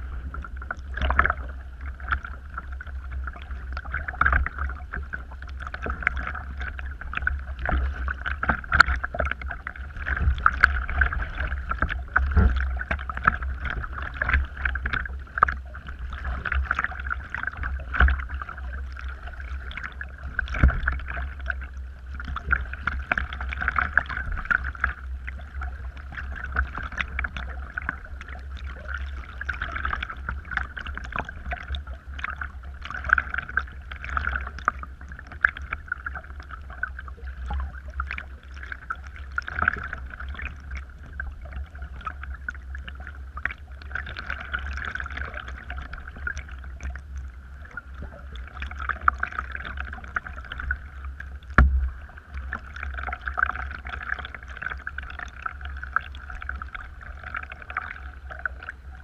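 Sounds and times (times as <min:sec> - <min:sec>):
steady low rumble: 0:00.0 - 0:59.0
water splashing against kayak hull: 0:00.0 - 0:59.0.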